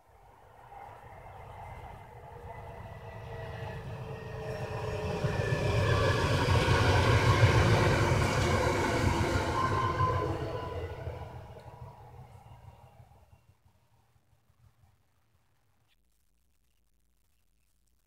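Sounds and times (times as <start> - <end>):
train high whine: 0.0 - 13.6
train wheels rumbling on rail: 0.6 - 13.4.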